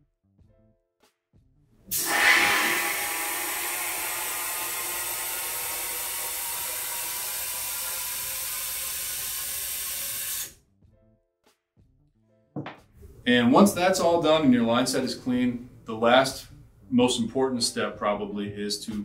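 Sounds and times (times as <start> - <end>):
compressed nitrogen hissing: 1.9 - 10.5.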